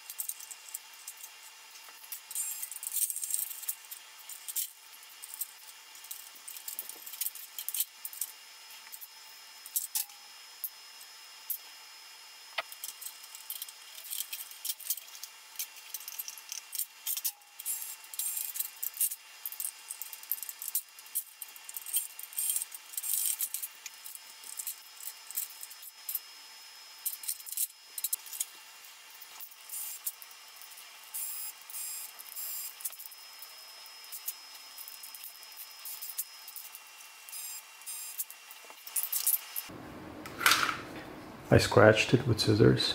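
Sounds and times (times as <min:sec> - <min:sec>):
scissors cutting wiring: 0:00.0 - 0:10.2, 0:12.6 - 0:26.2, 0:27.0 - 0:28.6.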